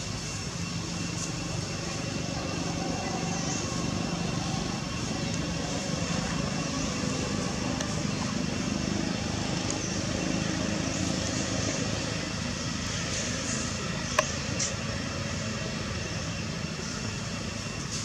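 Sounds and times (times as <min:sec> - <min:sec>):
distant engine rumble: 0:00.0 - 0:18.0.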